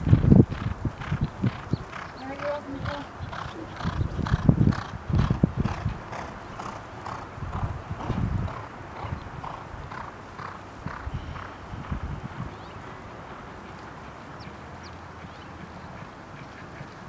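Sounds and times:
horses galloping on dirt: 0.0 - 12.8.

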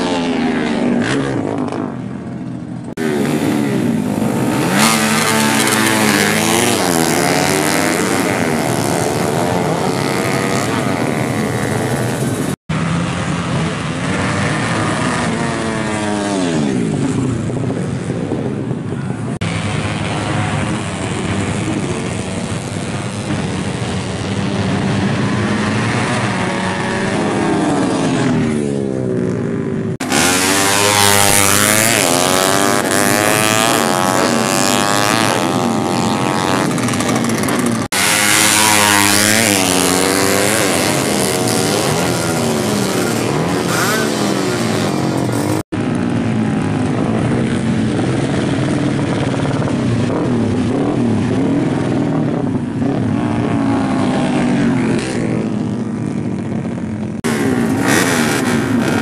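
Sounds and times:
motorcycles revving and accelerating: 0.0 - 59.0.

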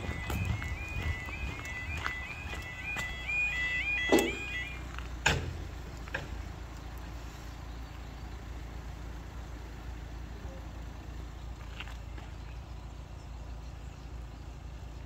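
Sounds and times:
two-tone yodel alarm: 0.0 - 4.9
steady low rumble: 0.0 - 9.9
barrier boom clunk: 4.0 - 4.6.

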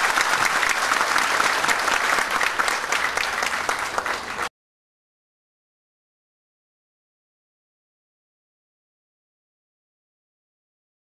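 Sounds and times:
audience applauding: 0.0 - 4.5.

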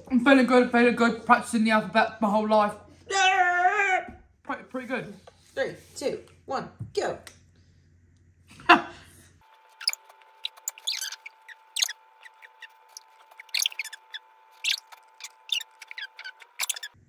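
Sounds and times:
marker squeaking on paper: 9.5 - 17.0.

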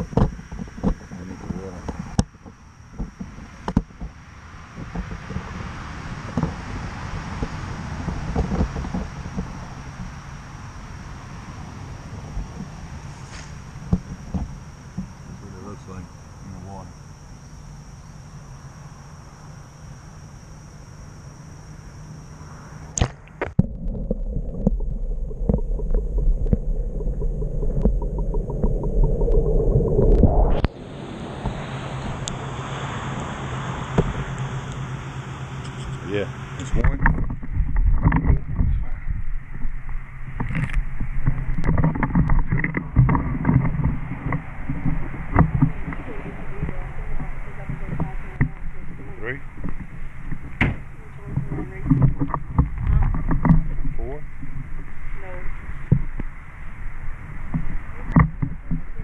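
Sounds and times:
underwater clicks and knocks: 0.0 - 4.2, 7.4 - 10.1, 23.0 - 30.7, 36.7 - 55.0, 55.8 - 56.3, 57.4 - 59.0
insects buzzing: 0.0 - 59.0
low underwater rumble: 0.0 - 59.0
brush and grass rustling cracking: 12.4 - 15.4.

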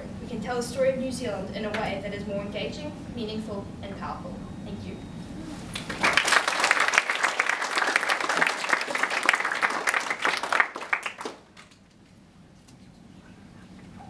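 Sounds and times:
audience applauding: 5.7 - 11.8.

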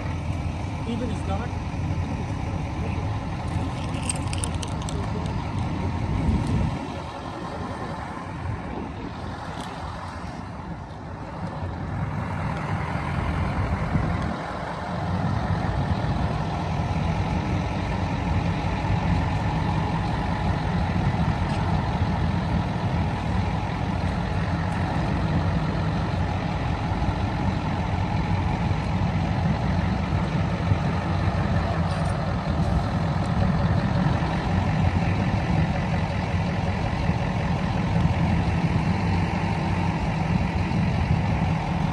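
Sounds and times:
heavy diesel engines droning: 0.0 - 41.9.

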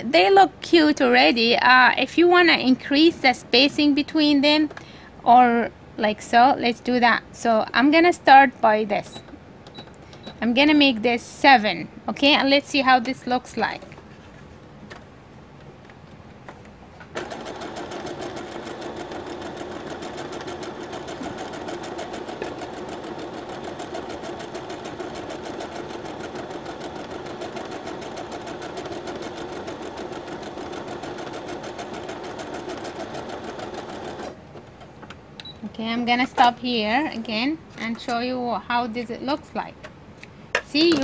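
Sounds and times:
sewing machine stitching: 17.1 - 34.4.

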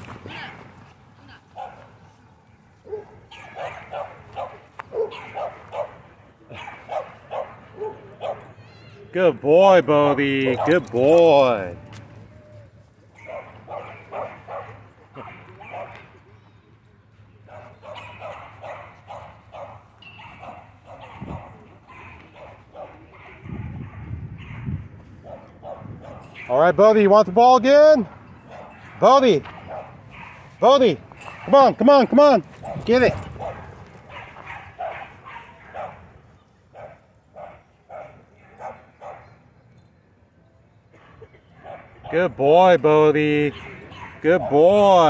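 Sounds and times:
dog barking: 1.6 - 1.9, 2.8 - 8.4, 13.2 - 16.0, 17.5 - 26.5, 32.6 - 36.0, 36.8 - 39.3, 41.2 - 42.2, 43.5 - 44.7.

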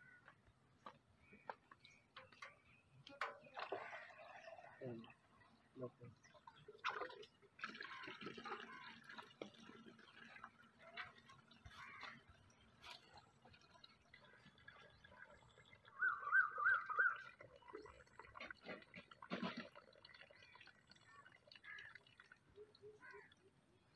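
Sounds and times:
faint chirps and clicks: 0.2 - 3.5.

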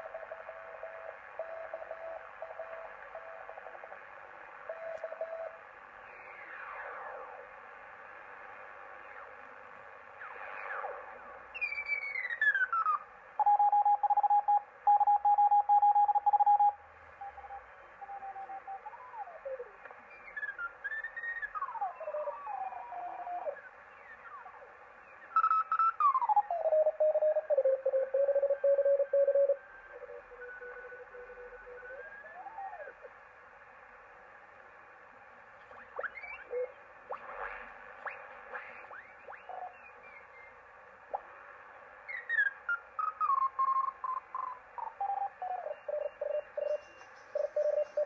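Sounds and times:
morse code signal: 0.0 - 3.7, 4.7 - 5.6, 13.4 - 18.8, 26.6 - 31.9, 45.1 - 48.0
receiver hiss: 0.0 - 48.0.

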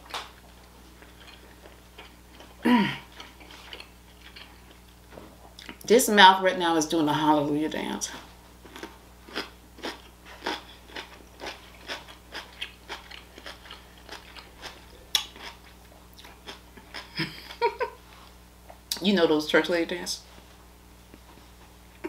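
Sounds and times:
faint low hum: 0.0 - 22.0
chewing crunchy pickle: 0.1 - 5.9, 8.6 - 17.7.

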